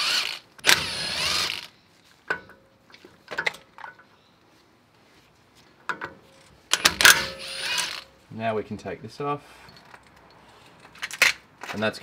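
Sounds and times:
power tool whine: 0.0s - 1.7s, 7.4s - 8.0s.

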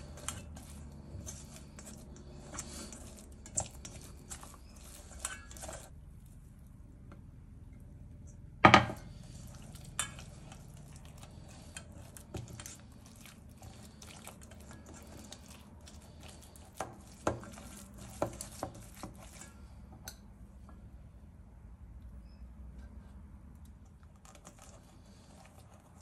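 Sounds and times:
spatula scraping metal bowl: 0.0s - 5.9s, 9.0s - 20.2s.

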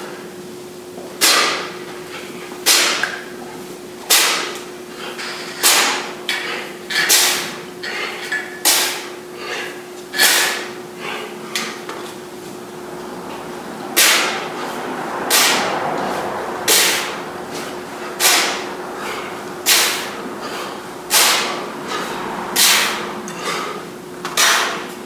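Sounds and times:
sharp hissing exhales: 6.4s - 11.7s, 15.4s - 24.8s.

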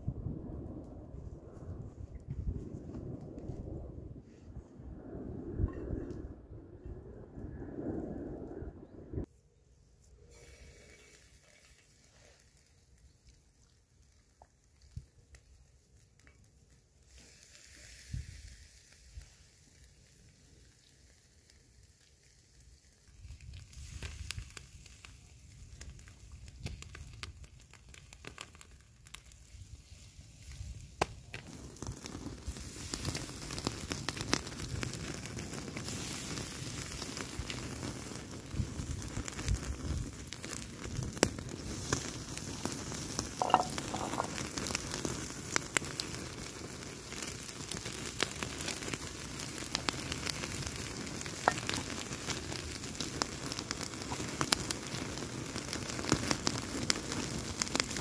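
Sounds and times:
fire crackling and sizzling: 0.0s - 58.0s.

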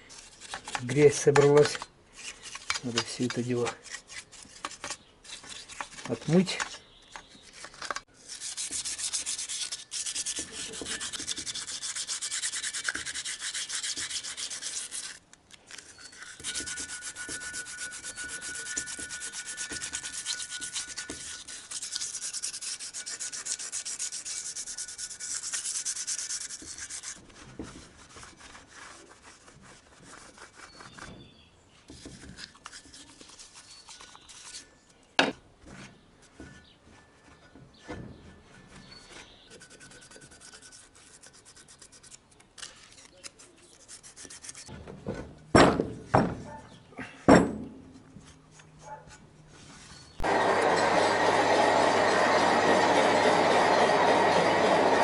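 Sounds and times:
scraping and handling: 0.0s - 13.2s, 13.9s - 46.6s
scrubbing metal by hand: 7.4s - 31.2s, 31.9s - 34.6s, 38.2s - 44.7s.

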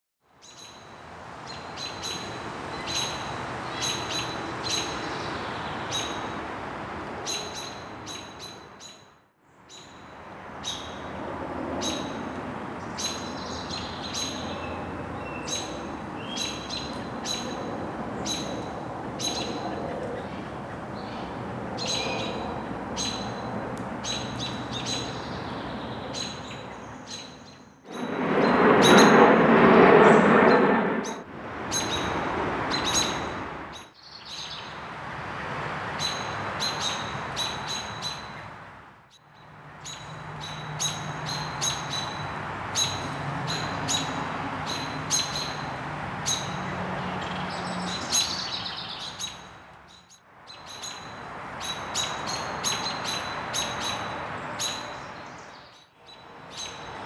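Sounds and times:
loud rushing noise: 27.9s - 31.6s
small songbirds chirping: 33.8s - 34.8s, 47.2s - 57.0s.

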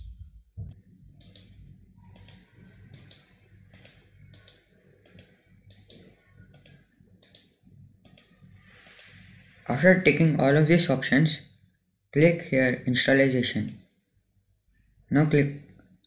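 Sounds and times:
faint low hum: 0.0s - 16.0s
computer mouse clicking: 1.2s - 9.2s.

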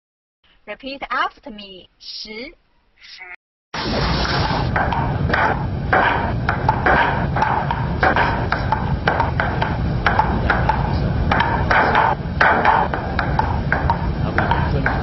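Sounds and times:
low rumble: 3.8s - 15.0s
ping-pong ball clicking: 6.5s - 15.0s.

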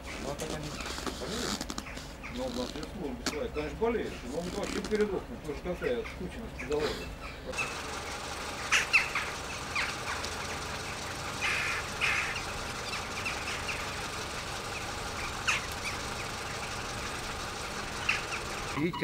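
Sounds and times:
high squeaky animal calls: 5.9s - 19.0s.

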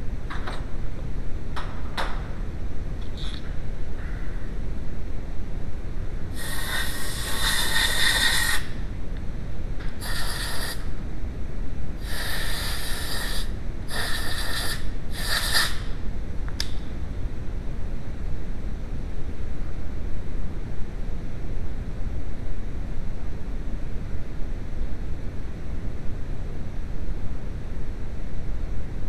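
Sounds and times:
air blow gun hissing: 6.3s - 8.8s, 10.0s - 10.9s, 12.0s - 15.9s
sharp click: 16.5s - 16.9s.

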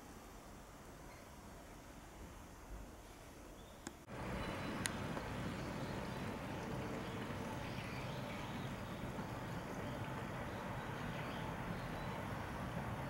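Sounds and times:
outdoor low rumble: 4.1s - 13.0s.

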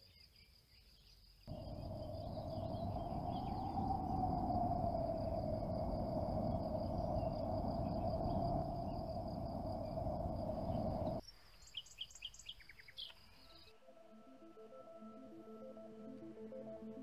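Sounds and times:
high-pitched drone: 1.5s - 11.2s
steady rushing noise: 1.5s - 11.2s.

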